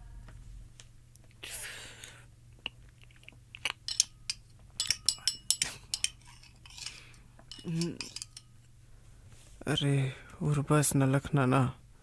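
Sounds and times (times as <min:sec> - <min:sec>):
utensils clinking: 0:03.6 - 0:08.7.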